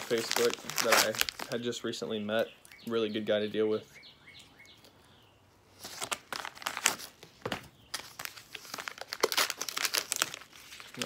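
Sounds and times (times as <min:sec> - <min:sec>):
paper envelope crinkling and tearing: 0:00.0 - 0:01.7, 0:05.8 - 0:11.0.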